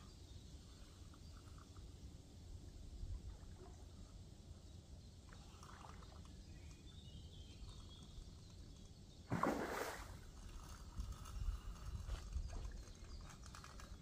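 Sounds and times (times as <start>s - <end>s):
fish splashing in water: 9.3s - 10.2s.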